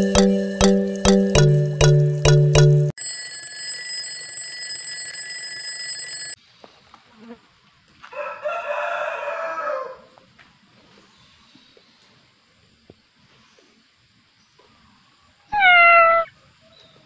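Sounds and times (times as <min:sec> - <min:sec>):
alarm clock bell ringing: 0:00.0 - 0:06.4
rooster crowing: 0:08.0 - 0:10.2.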